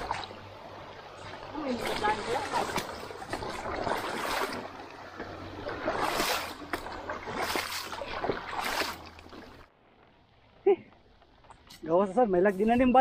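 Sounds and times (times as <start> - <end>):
rushing water and gravel: 0.0 - 10.2.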